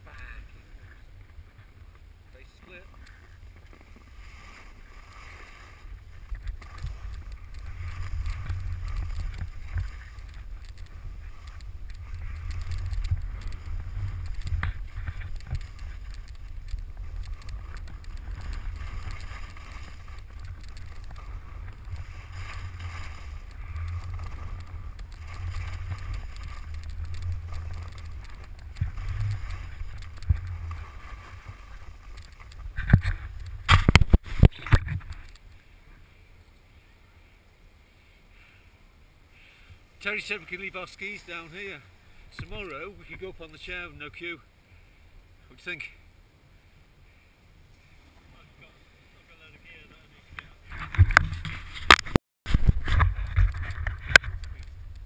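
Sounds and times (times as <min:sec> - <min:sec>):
skis scraping over snow: 0:00.2 - 0:35.0
wind rumbling over microphone: 0:03.0 - 0:35.4, 0:50.6 - 0:55.0.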